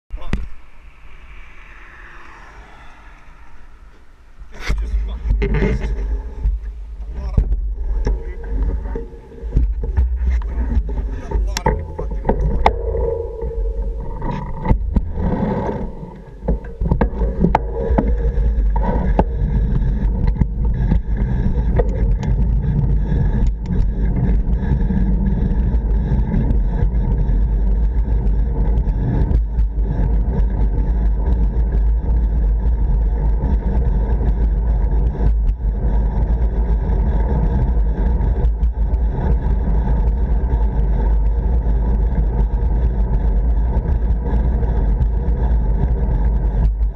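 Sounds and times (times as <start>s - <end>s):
tyre and road noise: 0.1s - 46.9s
wind rumbling over microphone: 0.1s - 46.9s.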